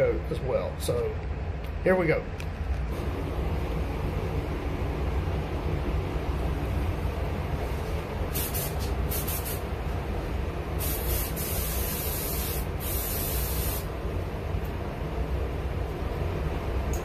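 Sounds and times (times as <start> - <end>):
steady low hum: 0.0 - 17.0
spray gun hissing: 8.3 - 9.7, 10.8 - 13.9.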